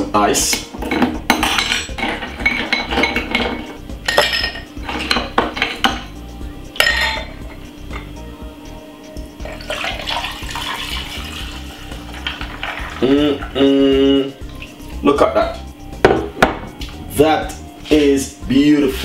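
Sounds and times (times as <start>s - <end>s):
juice pouring over ice: 9.4s - 13.6s
ice cubes clinking in glass: 9.7s - 13.1s.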